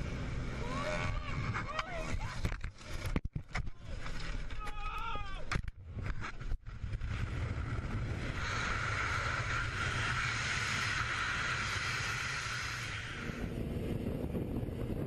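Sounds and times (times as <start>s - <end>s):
wind roar on microphone: 5.9s - 15.0s.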